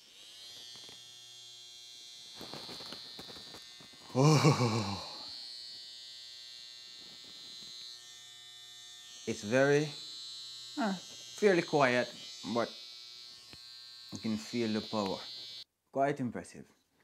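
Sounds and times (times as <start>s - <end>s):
hair trimmer buzzing: 0.0s - 15.7s.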